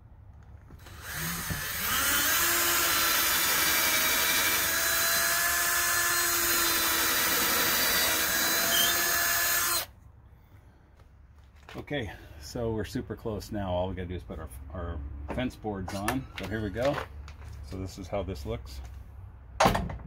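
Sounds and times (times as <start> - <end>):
cordless drill boring into wood: 0.8 - 9.9.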